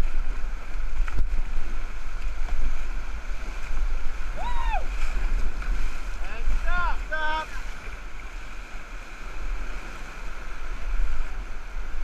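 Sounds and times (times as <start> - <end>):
whitewater rapids rushing: 0.0 - 12.0
person shouting: 4.4 - 4.9.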